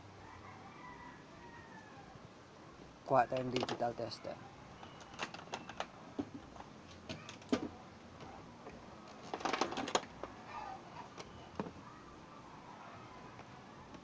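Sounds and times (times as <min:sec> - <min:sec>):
plastic clicks and knocks: 0:03.4 - 0:03.8.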